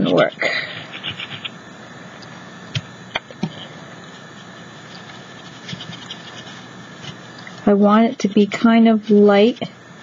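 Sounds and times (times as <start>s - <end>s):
hands rubbing plastic stencil: 0.0s - 1.6s, 4.2s - 7.2s.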